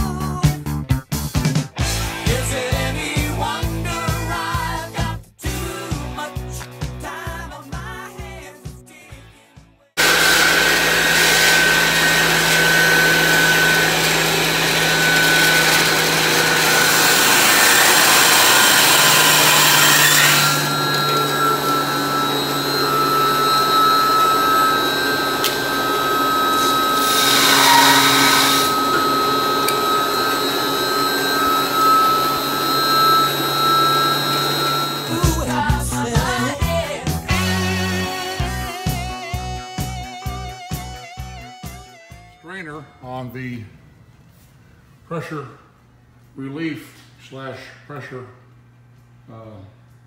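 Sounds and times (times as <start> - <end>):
steady high whine: 20.4 - 27.0, 27.8 - 38.3.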